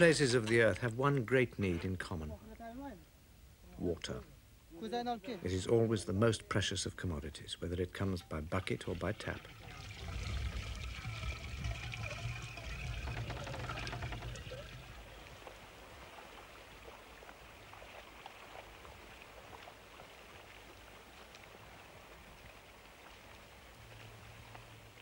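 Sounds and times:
faint steady hiss: 0.0s - 25.0s
water pouring and splashing into jars: 7.9s - 16.3s.

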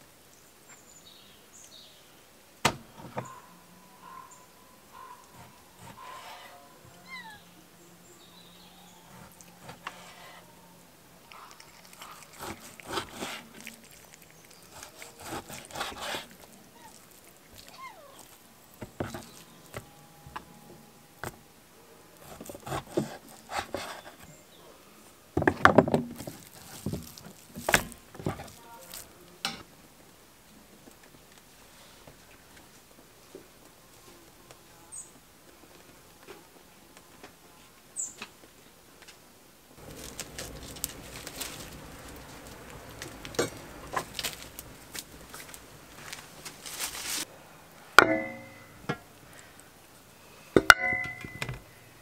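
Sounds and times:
knife slicing meat: 12.0s - 13.8s, 14.5s - 17.1s, 22.2s - 24.2s.

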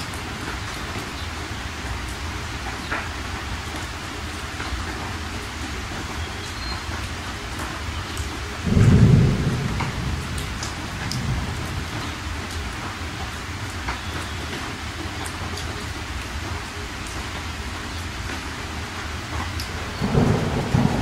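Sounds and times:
rain-like hiss: 0.0s - 21.0s
thunder rumble: 8.6s - 13.3s, 19.7s - 21.0s.

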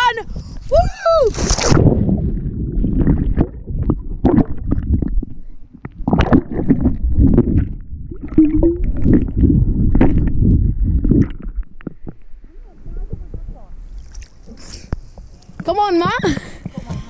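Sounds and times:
underwater knocks and splashes: 1.5s - 12.3s
muffled underwater rumble: 1.6s - 15.3s.

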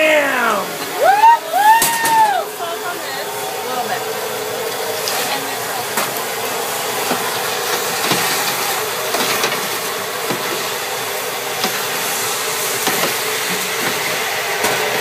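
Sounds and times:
steady hissing roar: 0.0s - 15.0s
popcorn rustling in metal tray: 7.0s - 15.0s.

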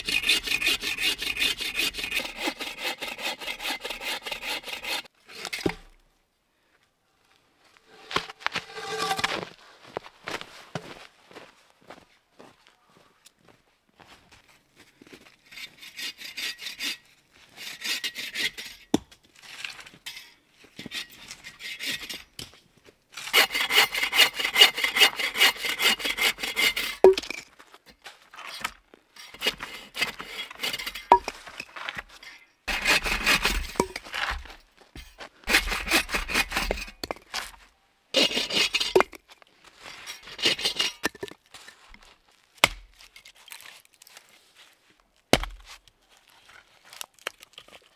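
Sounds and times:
hand saw cutting log: 0.0s - 5.5s, 8.6s - 9.4s, 15.5s - 18.8s, 23.2s - 27.1s, 29.2s - 31.3s, 32.7s - 34.5s, 35.4s - 37.0s, 38.2s - 39.1s, 40.0s - 41.2s.

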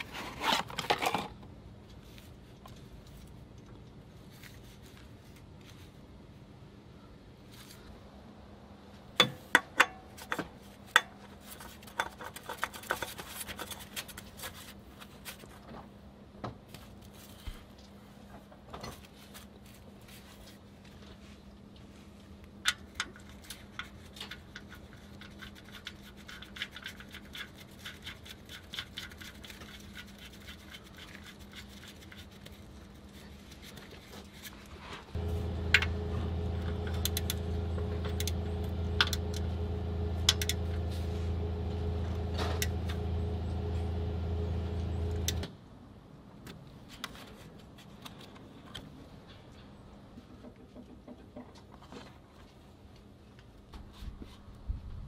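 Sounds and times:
hand tool clicks and scrapes: 22.7s - 32.6s, 40.2s - 40.8s
steady low hum: 35.1s - 45.5s.

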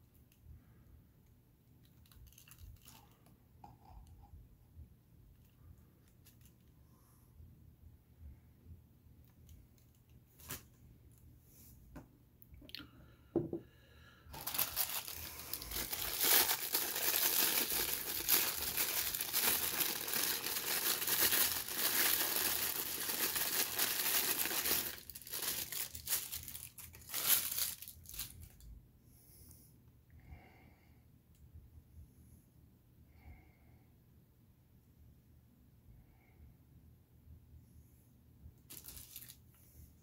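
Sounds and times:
packing paper crinkling: 1.8s - 3.2s, 9.4s - 10.8s, 14.3s - 28.6s, 38.7s - 39.5s.

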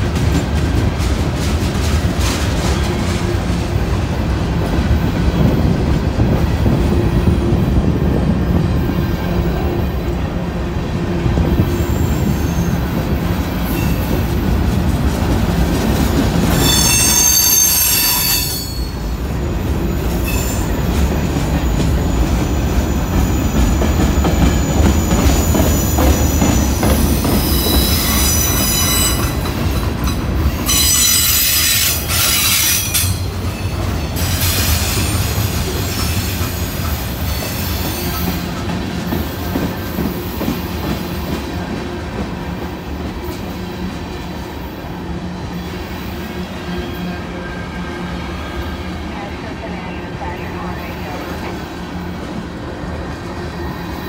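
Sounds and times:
freight train rolling past: 0.0s - 54.0s
train wheel squeal: 11.6s - 14.3s, 16.5s - 19.2s, 19.9s - 41.4s, 45.5s - 48.9s.

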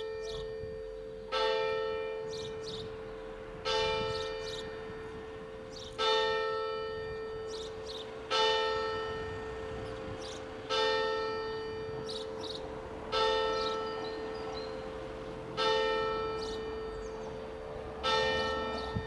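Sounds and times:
church bell striking: 0.0s - 19.0s.

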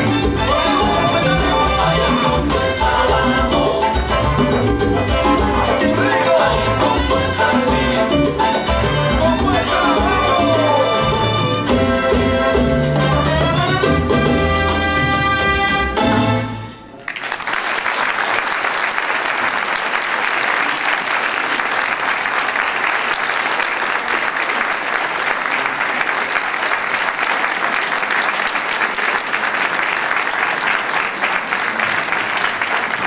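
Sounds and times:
salsa music: 0.0s - 17.0s
audience applause: 0.1s - 11.4s, 16.9s - 33.0s.

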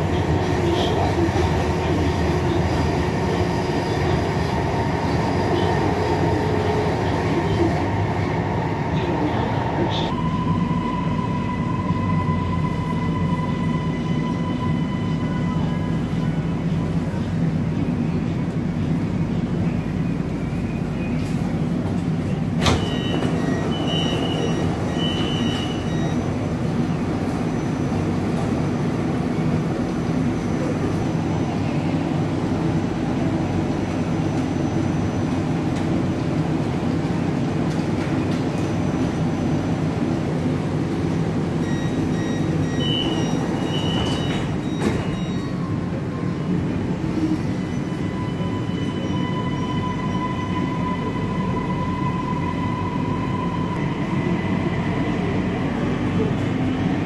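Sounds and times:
train car low rumble: 0.0s - 57.0s
train doors thudding shut: 21.2s - 26.2s, 41.9s - 45.6s.

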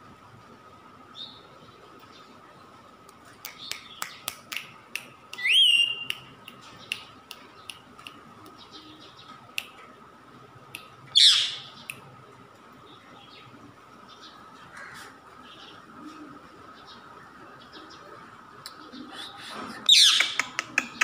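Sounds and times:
parakeet sharp clicks: 3.4s - 8.6s, 20.0s - 21.0s
parakeet whistle: 5.4s - 6.1s.

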